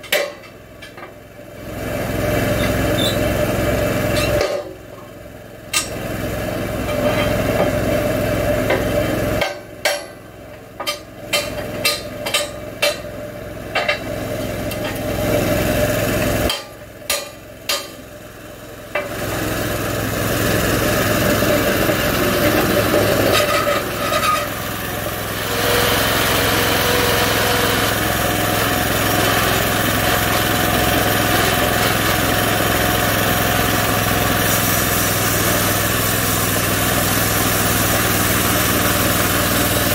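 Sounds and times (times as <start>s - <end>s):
small gas engine running: 0.0s - 9.7s, 10.4s - 39.9s
bandsaw blade cutting log: 20.6s - 39.9s.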